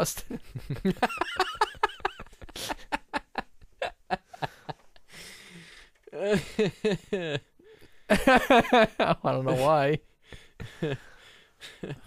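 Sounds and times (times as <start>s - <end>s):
person laughing: 0.3s - 5.0s, 6.1s - 7.5s, 8.1s - 9.9s.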